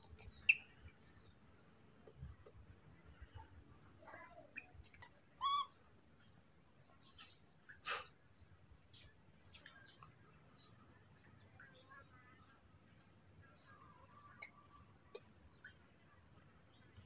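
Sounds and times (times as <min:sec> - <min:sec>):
faint bird chirps: 0:00.0 - 0:17.0
high-pitched animal call: 0:04.8 - 0:05.8.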